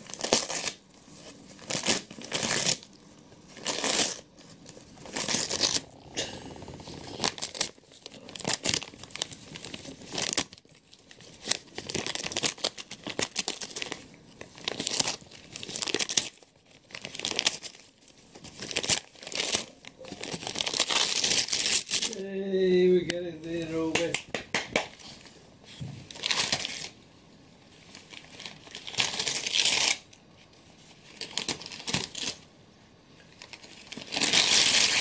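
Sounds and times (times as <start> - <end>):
dog ripping wrapping paper: 0.0 - 22.2, 27.9 - 30.1, 33.4 - 35.0.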